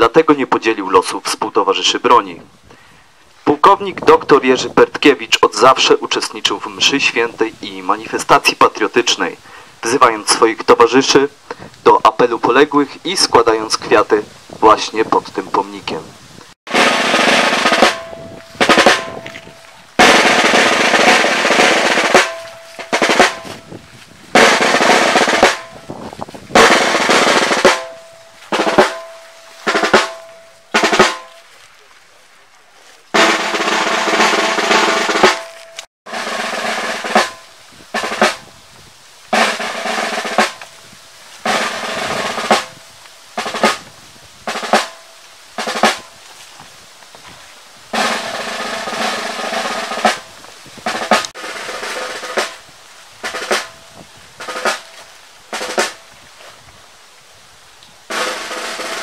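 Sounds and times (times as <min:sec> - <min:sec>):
snare drum rolls: 0:16.7 - 0:23.7, 0:24.3 - 0:25.9, 0:26.5 - 0:31.4, 0:33.2 - 0:38.5, 0:39.3 - 0:40.7, 0:41.4 - 0:42.8, 0:43.4 - 0:43.9, 0:44.5 - 0:46.1, 0:47.9 - 0:56.0, 0:58.1 - 0:59.0.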